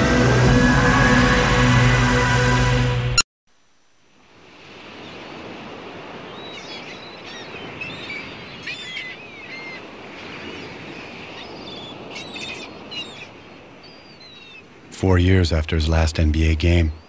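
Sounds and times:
surf rushing: 4.4 - 13.8
birds chirping: 6.2 - 17.0.

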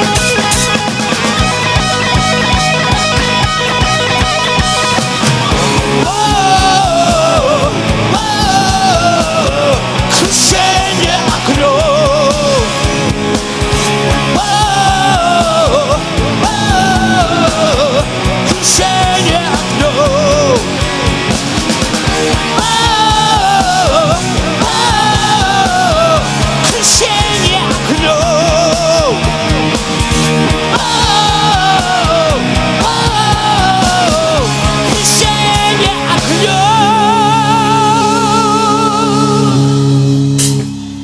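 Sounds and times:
fast drumming: 0.0 - 39.6
bass guitar: 0.0 - 41.0
distorted rhythm guitar: 0.0 - 41.0
lead electric guitar: 0.0 - 41.0.

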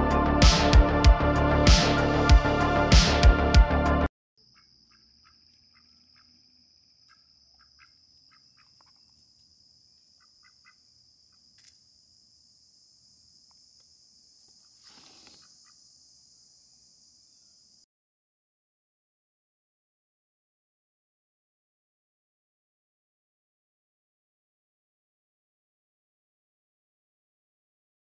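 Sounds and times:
soft chirps and clicks: 7.0 - 9.3, 11.4 - 11.9.

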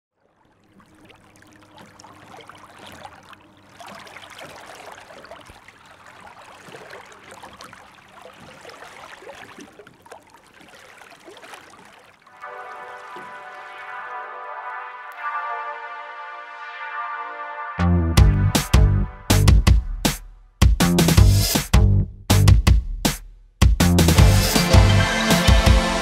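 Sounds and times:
water splashing against kayak hull: 0.1 - 15.3.

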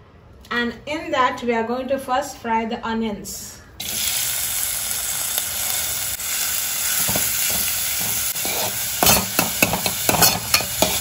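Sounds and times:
onions sizzling in oil: 3.8 - 11.0
spatula scraping pan: 7.0 - 11.0.

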